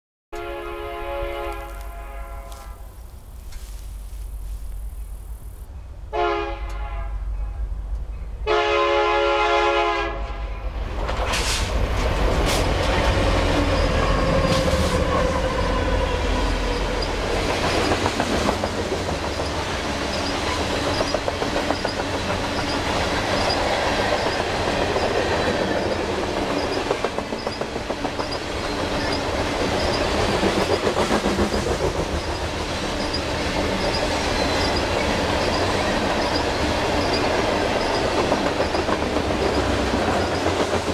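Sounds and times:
locomotive air horn: 0.4s - 2.9s, 6.1s - 7.7s, 8.4s - 10.6s
locomotives rumbling past: 10.6s - 40.9s
train wheels clattering: 11.0s - 40.9s.

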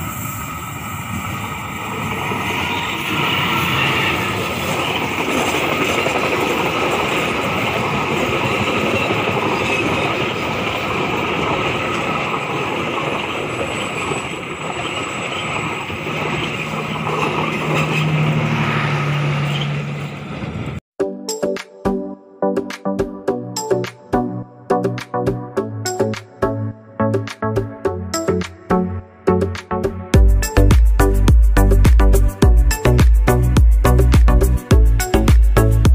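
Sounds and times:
train wheels rumbling on rails: 0.0s - 20.8s.

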